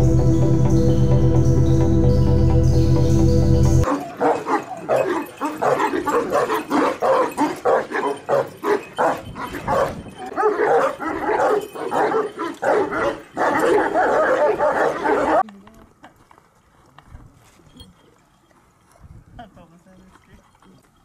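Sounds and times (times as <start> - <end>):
dogs barking: 3.8 - 15.4.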